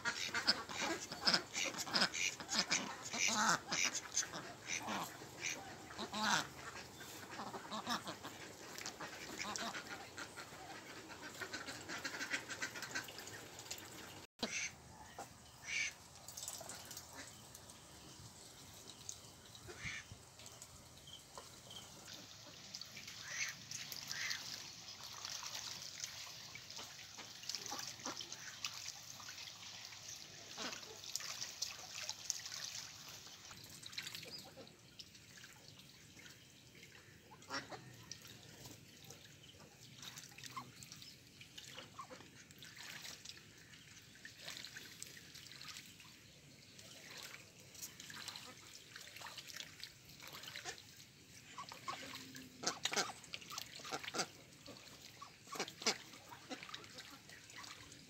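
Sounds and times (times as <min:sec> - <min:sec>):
quiet duck calls: 0:00.0 - 0:13.4, 0:14.4 - 0:16.0, 0:19.6 - 0:20.2, 0:21.7 - 0:25.8, 0:50.2 - 0:57.8
ducks dabbling in water: 0:00.0 - 0:58.0.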